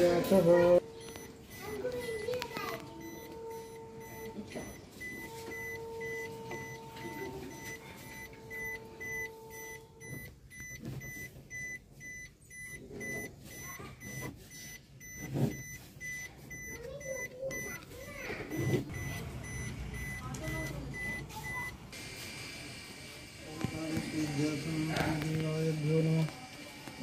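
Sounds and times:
car warning chime beeping: 0:00.3 - 0:21.9.

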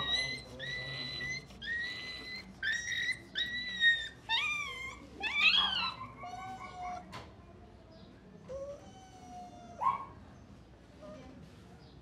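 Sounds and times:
puppy whining and crying: 0:00.0 - 0:07.1, 0:08.5 - 0:09.8.

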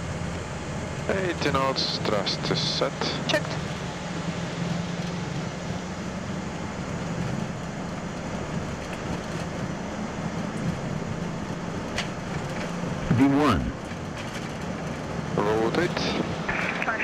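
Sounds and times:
jet engines roaring on takeoff: 0:00.0 - 0:17.0
wheels rumbling on runway: 0:00.0 - 0:17.0.

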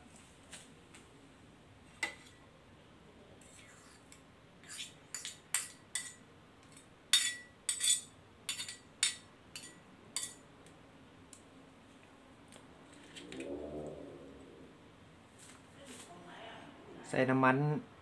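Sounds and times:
metal spoon clinking on a plate: 0:05.1 - 0:10.4.

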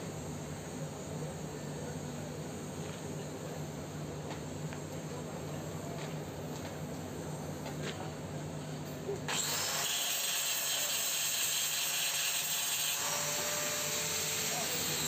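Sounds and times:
angle grinder grinding steel pipe: 0:09.3 - 0:15.0.

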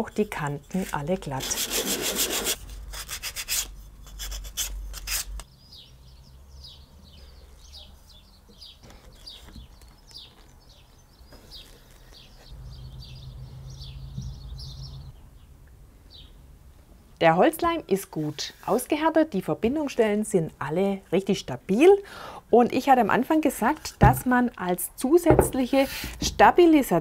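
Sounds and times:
wood rubbing on sandpaper: 0:01.3 - 0:05.4
small birds chirping: 0:05.4 - 0:16.4.

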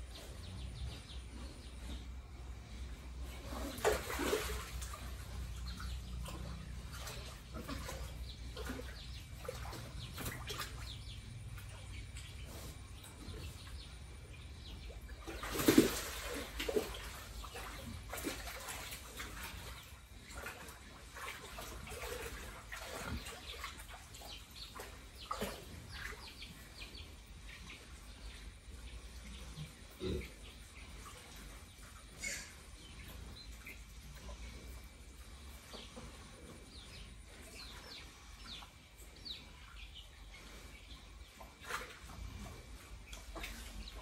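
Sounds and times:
pigs splashing in wet pen: 0:03.0 - 0:44.0
short pig noises: 0:32.0 - 0:33.1.

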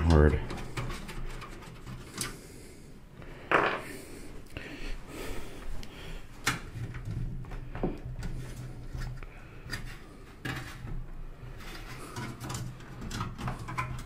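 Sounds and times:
computer case parts clicking and knocking: 0:00.0 - 0:02.3, 0:06.4 - 0:11.0, 0:12.1 - 0:14.0.

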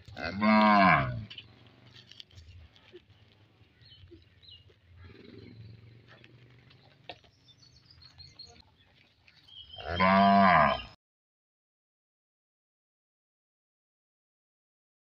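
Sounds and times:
cow mooing: 0:00.2 - 0:01.3, 0:09.8 - 0:11.0.

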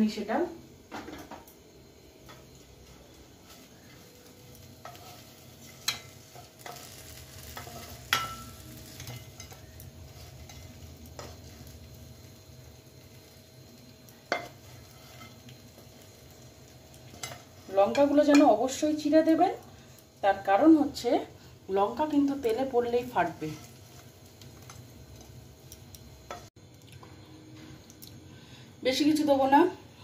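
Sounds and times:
spatula scraping frying pan: 0:02.3 - 0:11.7, 0:14.3 - 0:16.4, 0:17.1 - 0:18.4.

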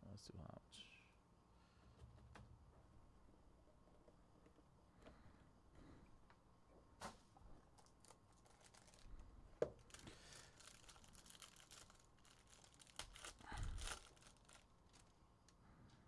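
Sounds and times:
cards rustling: 0:07.7 - 0:15.2
foil wrapper tearing and crinkling: 0:07.8 - 0:15.2.

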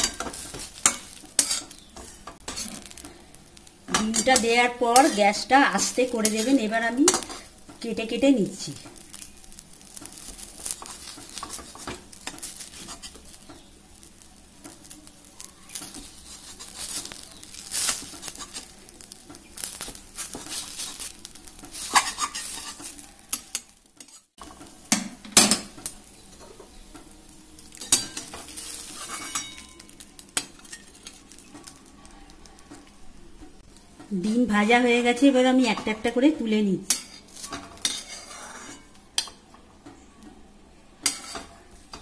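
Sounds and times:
metal spatula scraping and knocking: 0:00.0 - 0:02.9, 0:19.7 - 0:24.3, 0:27.8 - 0:29.8, 0:36.9 - 0:39.4, 0:41.0 - 0:42.0
light frying sizzle: 0:00.0 - 0:42.0.

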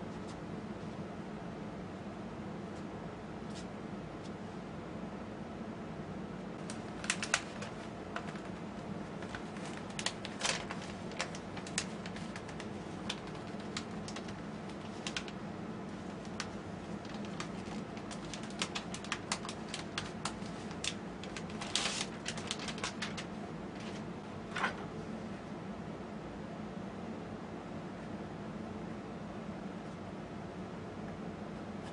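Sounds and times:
steady low hum: 0:00.0 - 0:31.9
paper crackling: 0:06.6 - 0:24.8.

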